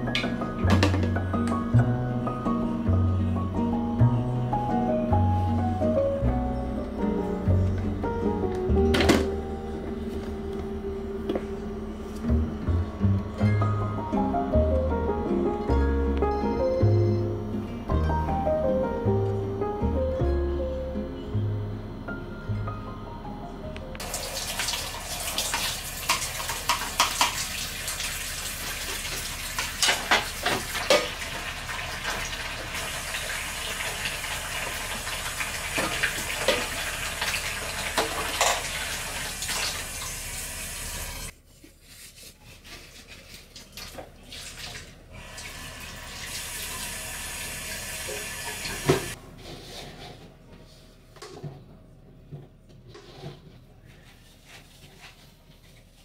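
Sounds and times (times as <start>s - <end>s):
dishes clinking and knocking: 0.1s - 1.3s
tap running into sink: 24.0s - 28.2s, 48.0s - 49.2s.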